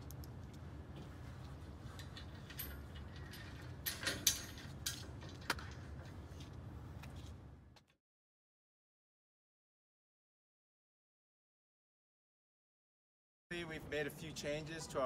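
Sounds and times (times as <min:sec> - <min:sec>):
metal bolts and nuts clinking: 0:01.8 - 0:05.8.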